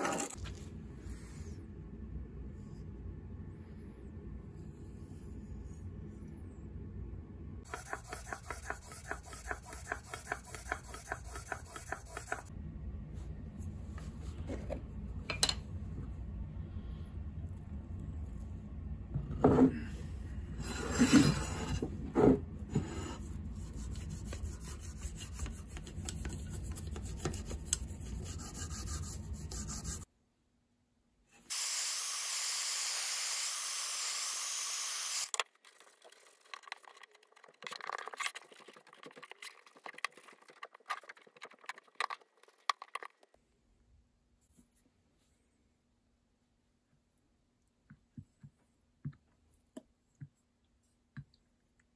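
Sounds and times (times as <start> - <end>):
heat gun blowing: 31.5 - 35.3.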